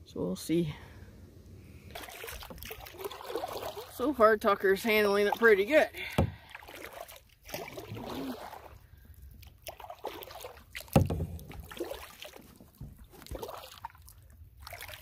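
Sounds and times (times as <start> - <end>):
paddle swishes and drips: 1.8 - 15.0
sharp knocks on canoe: 6.1 - 6.5, 10.8 - 11.8.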